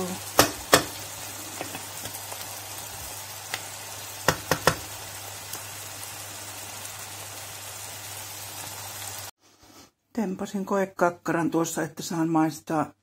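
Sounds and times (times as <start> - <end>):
butter sizzling in a frying pan: 0.0 - 9.3
utensil knocking on pan: 0.4 - 1.0, 4.2 - 5.0.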